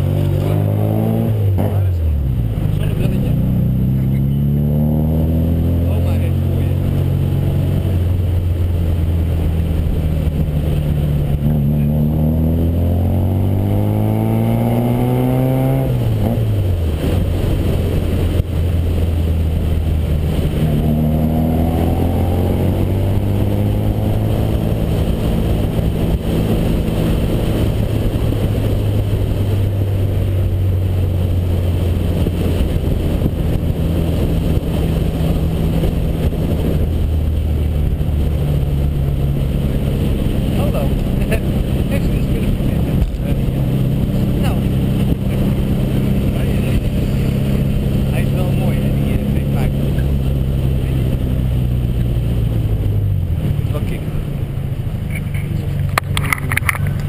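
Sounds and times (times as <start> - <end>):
car engine revving: 0.0 - 57.0
wind and road noise: 0.0 - 57.0.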